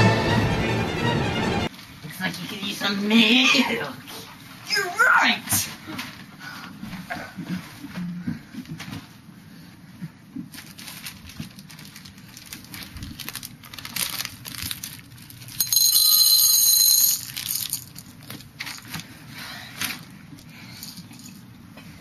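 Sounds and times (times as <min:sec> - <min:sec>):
loud high-pitched tone: 0:00.0 - 0:01.7
plastic candy wrapper crinkling: 0:10.5 - 0:15.7, 0:17.2 - 0:19.0.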